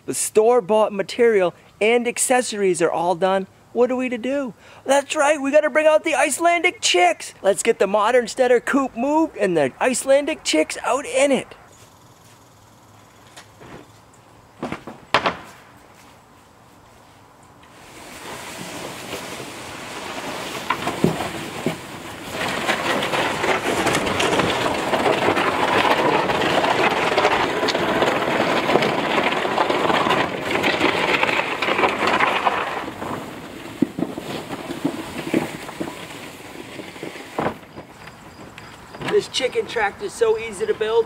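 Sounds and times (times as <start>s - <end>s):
wooden frame scraping over gravel: 0.2s - 41.0s
scattered knocks: 20.6s - 39.1s.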